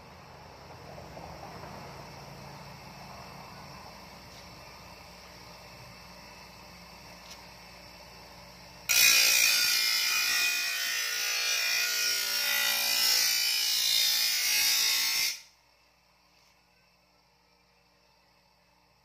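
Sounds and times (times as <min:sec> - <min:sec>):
bench grinder grinding steel: 0:08.9 - 0:15.5.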